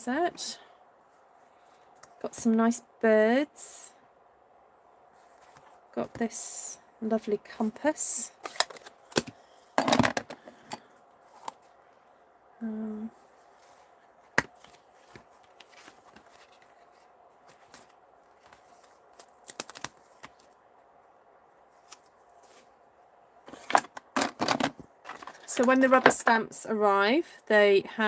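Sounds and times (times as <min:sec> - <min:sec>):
person humming: 0:12.6 - 0:13.2
plastic and paper rustling: 0:14.5 - 0:20.6.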